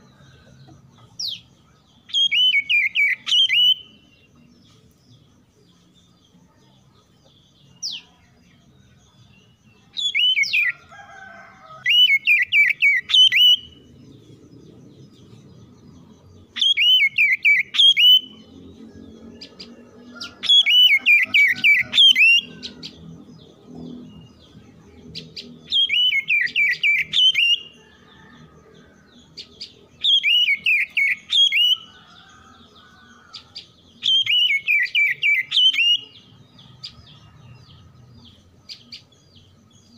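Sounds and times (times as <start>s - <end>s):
bird singing whistled notes: 1.2s - 4.4s, 9.0s - 10.7s, 11.8s - 14.0s, 15.1s - 22.9s, 23.9s - 28.3s, 29.4s - 32.5s, 33.3s - 37.4s.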